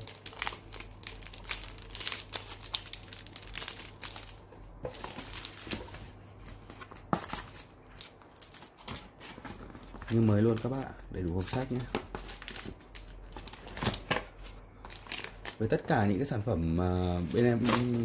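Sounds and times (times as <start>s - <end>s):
plastic film crinkling: 0.0s - 15.8s, 17.1s - 18.0s.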